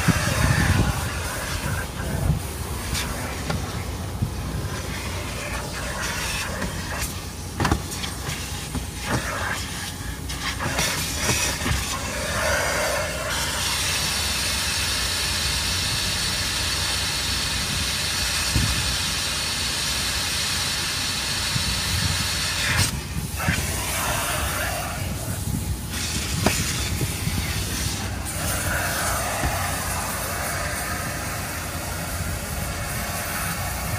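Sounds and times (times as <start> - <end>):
vacuum suction hiss: 0.0 - 33.9.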